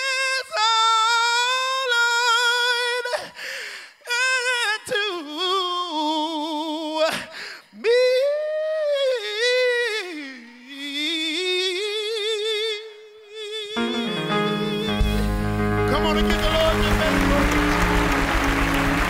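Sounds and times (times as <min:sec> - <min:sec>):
man singing a cappella: 0:00.0 - 0:03.4, 0:04.0 - 0:15.3.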